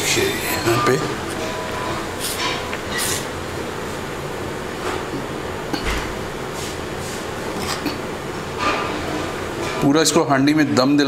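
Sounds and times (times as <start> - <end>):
steady room hum: 0.0 - 11.0
cutlery scraping a pot: 0.7 - 3.3, 8.6 - 9.8.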